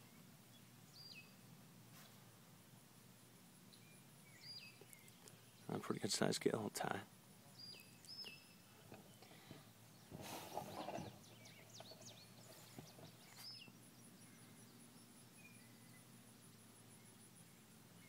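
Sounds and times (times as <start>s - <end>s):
brief rustle: 10.1s - 13.6s.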